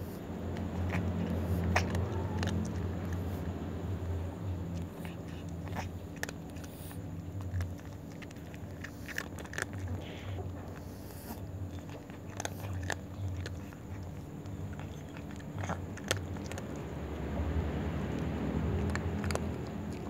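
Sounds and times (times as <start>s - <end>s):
steady low hum: 0.0s - 20.0s
cat crunching dry kibble: 0.5s - 20.0s.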